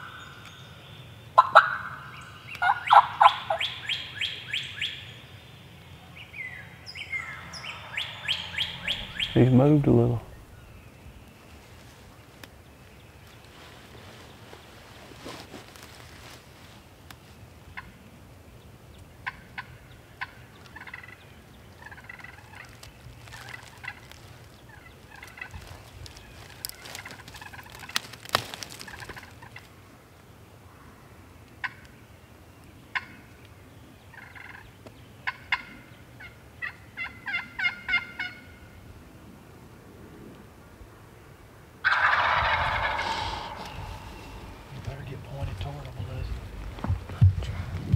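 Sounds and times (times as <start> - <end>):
turkey gobbling: 1.4 - 5.0, 7.1 - 9.5, 19.2 - 21.2, 21.8 - 28.0, 31.6 - 31.8, 32.9 - 33.2, 34.1 - 38.6, 41.8 - 45.6.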